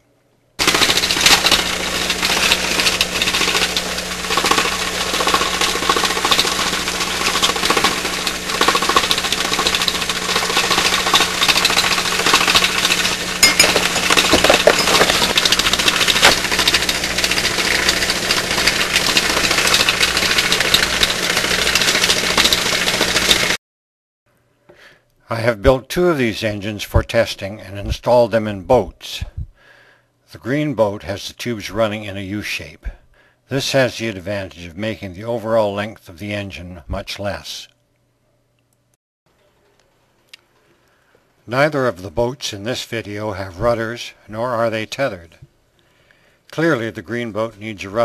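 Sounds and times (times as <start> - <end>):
pop-pop steam engine popping: 0.6 - 23.6.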